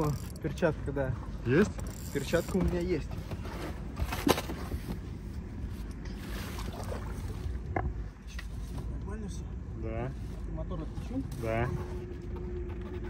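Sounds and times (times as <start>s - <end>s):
water splashing beside boat: 0.0s - 9.2s.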